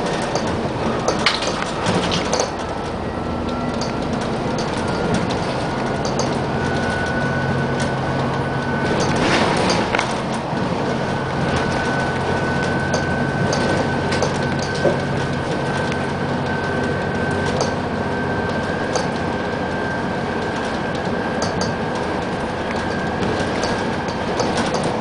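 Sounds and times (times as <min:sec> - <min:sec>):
body clicks and rattles: 0:00.0 - 0:07.1, 0:20.5 - 0:25.0
diesel engine drone: 0:00.0 - 0:25.0
road noise: 0:00.0 - 0:25.0.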